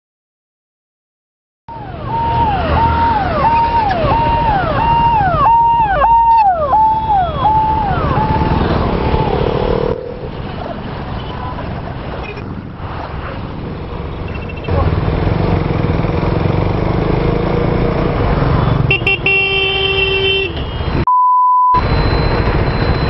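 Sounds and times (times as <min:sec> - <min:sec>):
siren-type hooter: 0:01.7 - 0:10.0, 0:21.7 - 0:23.0
motorcycle engines: 0:01.7 - 0:21.1, 0:21.8 - 0:23.0
traffic noise: 0:01.7 - 0:21.1, 0:21.8 - 0:23.0.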